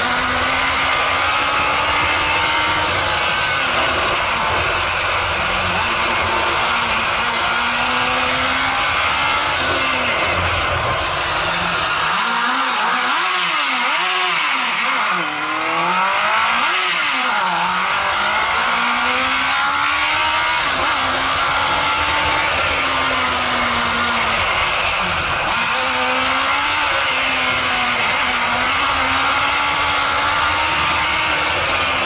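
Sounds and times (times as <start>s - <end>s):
buggy engine revving: 0.0s - 32.0s.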